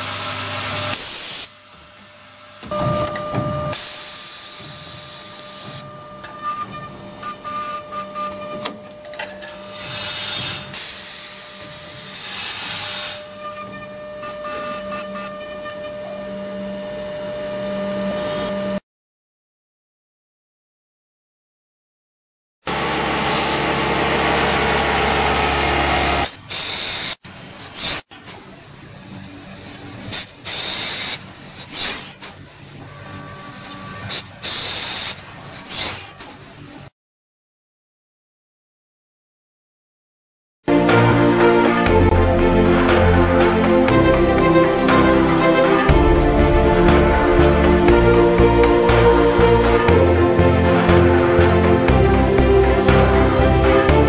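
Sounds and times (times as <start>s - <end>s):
lathe machine hum with hiss: 0.0s - 15.2s, 22.7s - 27.7s
machine whine: 0.0s - 18.8s, 41.8s - 54.0s.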